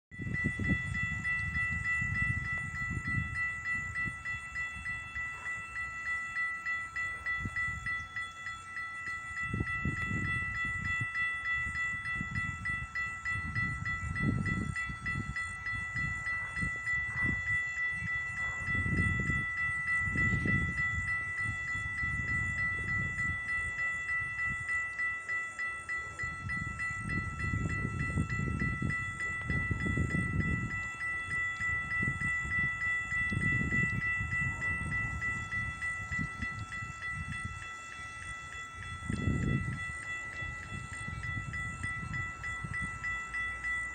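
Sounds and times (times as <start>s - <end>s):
crossing warning bell ringing: 0.1s - 43.9s.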